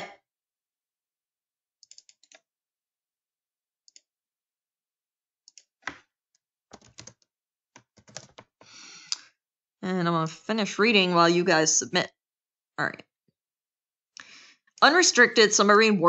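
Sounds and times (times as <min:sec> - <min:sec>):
keyboard keys clicking: 0:06.7 - 0:07.2, 0:07.8 - 0:08.5.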